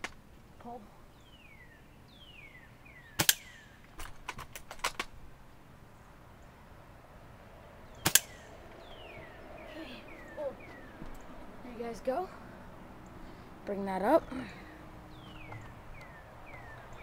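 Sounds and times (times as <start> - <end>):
bird whistling: 1.2 - 3.7, 7.9 - 11.3, 15.1 - 17.0
airsoft rifle shots: 3.2 - 5.1, 8.0 - 8.5.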